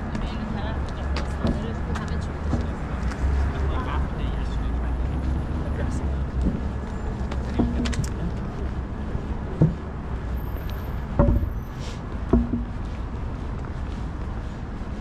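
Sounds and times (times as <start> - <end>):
low rumble of traffic: 0.0 - 15.0
sharp knocks and clicks: 7.3 - 8.2, 9.6 - 9.9, 11.1 - 11.6, 12.2 - 12.8.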